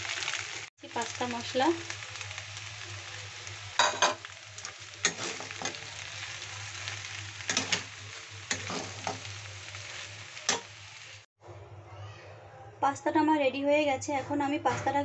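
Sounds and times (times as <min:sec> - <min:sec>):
pasta sizzling in wok: 0:00.0 - 0:11.3
metal spatula scraping pan: 0:05.0 - 0:05.8, 0:07.5 - 0:10.7.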